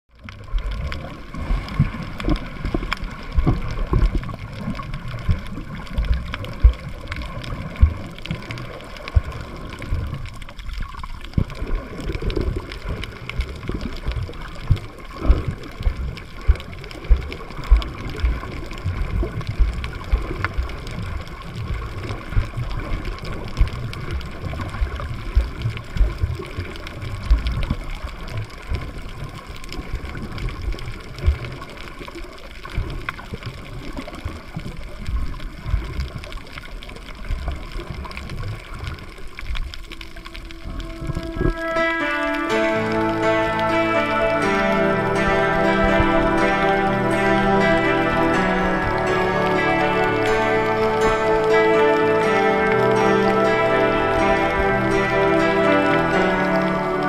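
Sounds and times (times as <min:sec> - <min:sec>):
muffled underwater water movement: 0:00.1 - 0:57.0
faint clicks: 0:00.2 - 0:41.8
low underwater thumps: 0:01.8 - 0:08.5, 0:14.1 - 0:20.8.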